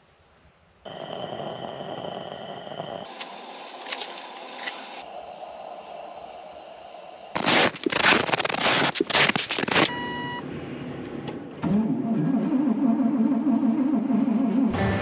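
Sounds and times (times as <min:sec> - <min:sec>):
short electronic beep: 0:09.9 - 0:10.4.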